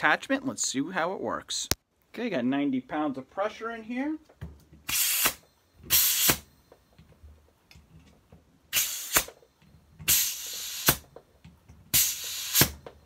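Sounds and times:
compressed air hissing: 4.9s - 6.5s, 8.7s - 9.4s, 10.0s - 11.1s, 11.9s - 12.8s.

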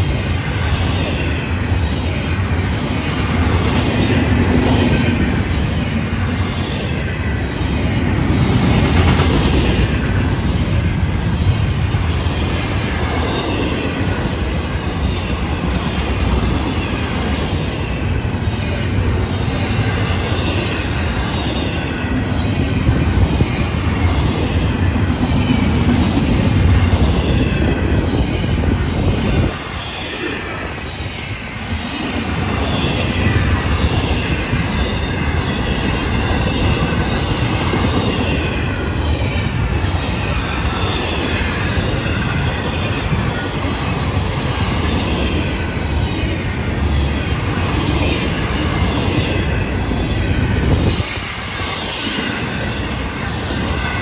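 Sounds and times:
train wheels rumbling on track: 0.0s - 54.0s.

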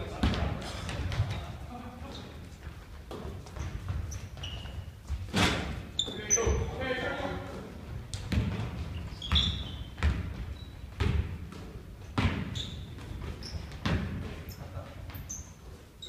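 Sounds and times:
basketball bouncing on wooden floor: 0.1s - 1.5s, 8.0s - 15.3s
sneaker squeaks: 0.1s - 2.3s, 3.1s - 6.8s, 8.2s - 16.0s.

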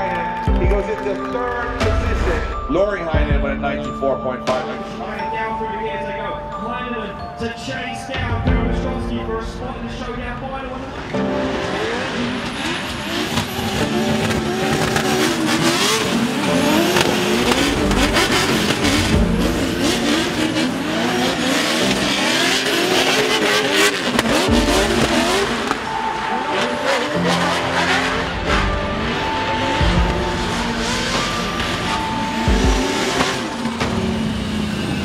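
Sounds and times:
car engine revving hard: 10.8s - 35.0s.

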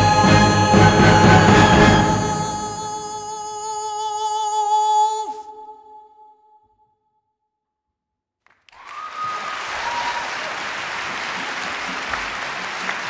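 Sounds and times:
audience applause: 8.5s - 13.0s.

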